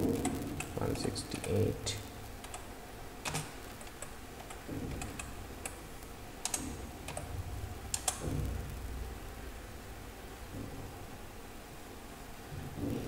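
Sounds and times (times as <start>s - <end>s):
computer keyboard key clicks: 3.3s - 5.4s, 6.4s - 7.3s, 7.9s - 8.2s.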